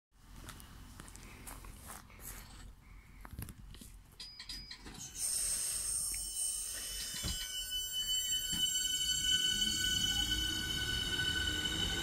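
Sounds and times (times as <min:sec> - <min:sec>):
steady electrical tones: 0:04.2 - 0:12.0
electric train whine: 0:04.8 - 0:12.0.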